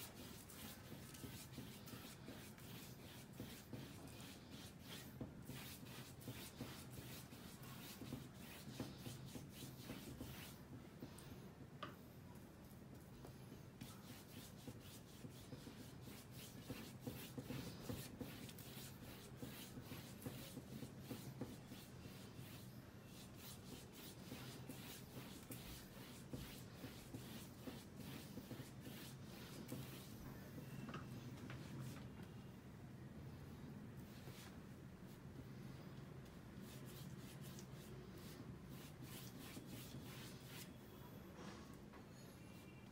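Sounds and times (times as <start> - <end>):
paintbrush strokes on canvas: 0.0 - 11.4, 13.0 - 30.8, 36.6 - 41.0.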